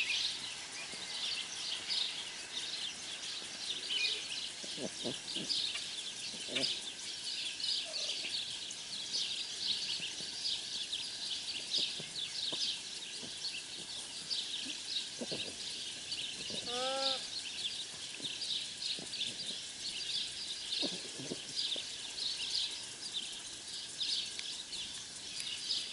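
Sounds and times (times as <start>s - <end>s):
small birds chirping: 0.0s - 25.9s.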